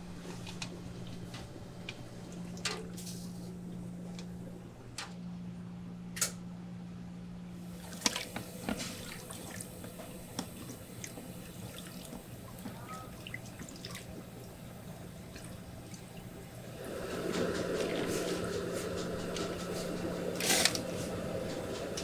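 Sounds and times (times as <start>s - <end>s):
water dripping and trickling: 7.8s - 22.0s.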